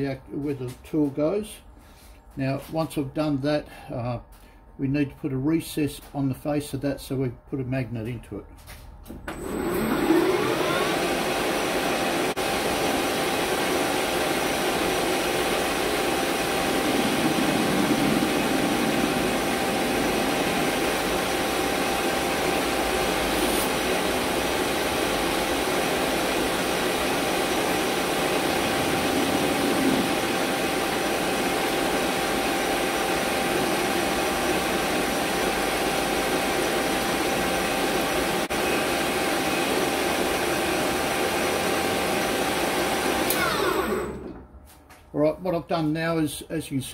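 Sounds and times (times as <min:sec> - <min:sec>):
metal lathe whining: 0:09.3 - 0:44.4.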